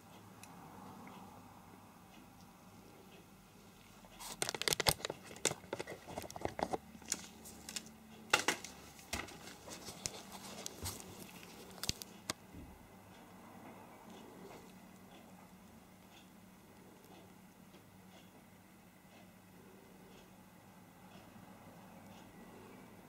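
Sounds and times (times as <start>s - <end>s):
camera handling rustles and clicks: 4.2s - 12.1s.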